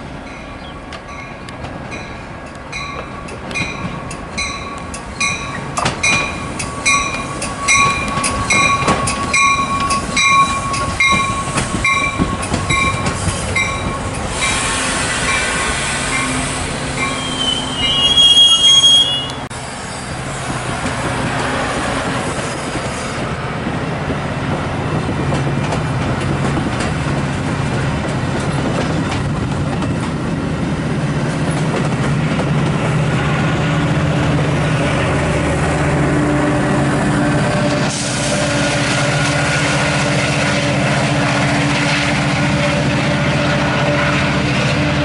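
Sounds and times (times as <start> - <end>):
train bell ringing: 0.3 - 14.6, 17.0 - 19.3
train wheels and brakes squealing: 3.0 - 23.3, 37.4 - 40.8.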